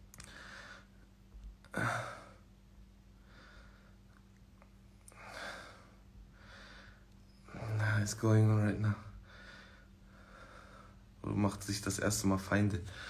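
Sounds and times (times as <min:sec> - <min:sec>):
man sighing exhalations: 0:01.7 - 0:02.4.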